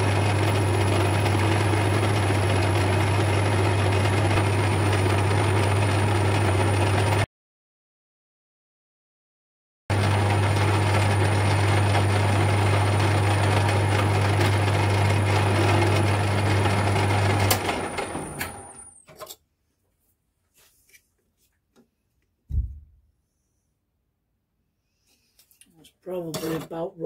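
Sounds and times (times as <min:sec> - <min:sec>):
metal lathe cutting: 0:09.9 - 0:18.8
lathe chuck spinning down: 0:10.0 - 0:18.9
knock: 0:22.5 - 0:23.0.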